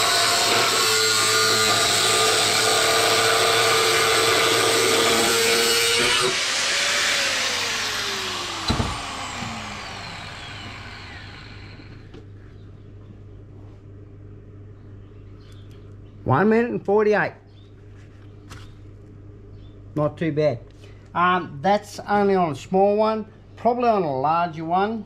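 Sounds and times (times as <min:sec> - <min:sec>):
angle grinder cutting steel: 0:00.0 - 0:12.1
knock: 0:08.7 - 0:09.0.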